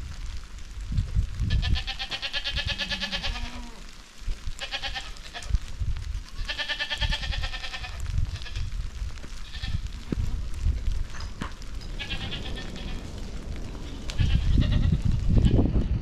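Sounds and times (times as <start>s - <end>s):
goats bleating: 1.5s - 4.0s, 4.6s - 5.6s, 6.3s - 8.8s, 12.0s - 13.1s, 14.0s - 15.6s
low rumble: 7.4s - 16.0s.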